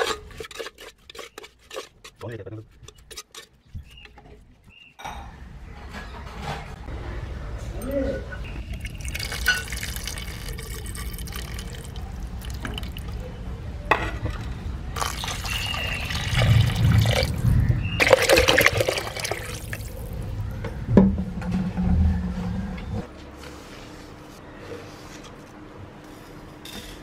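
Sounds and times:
liquid pouring into a metal pot: 8.7 - 13.2, 15.0 - 17.4, 18.0 - 20.1.

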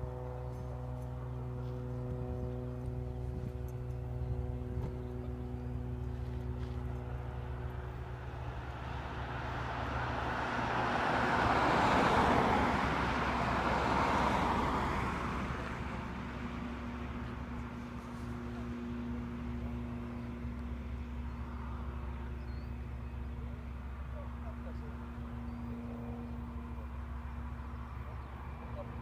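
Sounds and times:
steady low hum: 0.0 - 29.0
car passing: 7.4 - 29.0.

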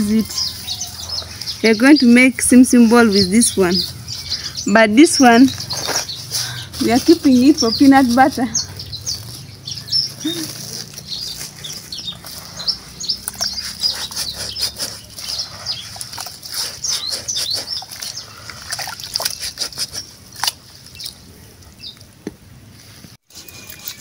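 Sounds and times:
birds chirping: 0.0 - 22.1
seeds rustling in plastic basin: 5.4 - 9.6, 10.2 - 12.8.

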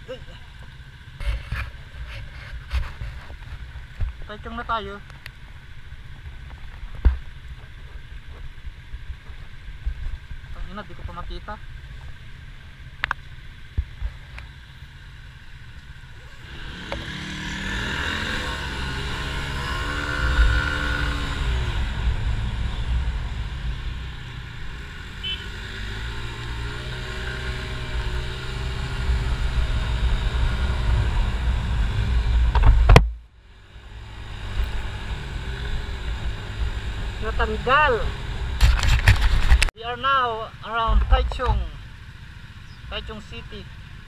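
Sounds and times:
motor scooter engine: 16.1 - 31.2
wind rumble on microphone: 27.8 - 33.3.

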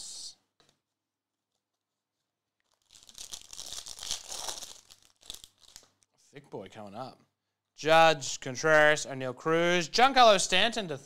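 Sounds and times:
foil wrapper crinkling: 2.6 - 6.1.

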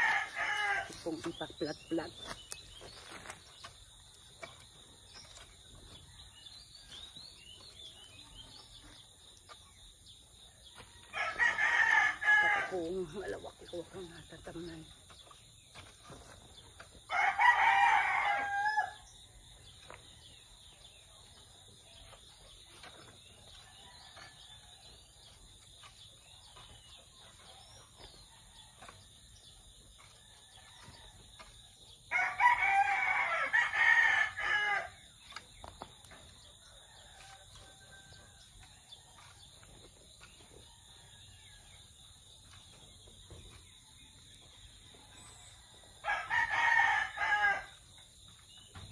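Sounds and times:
rooster crowing: 0.0 - 0.9, 11.0 - 12.7, 17.1 - 19.1, 32.1 - 35.0, 46.0 - 47.8.

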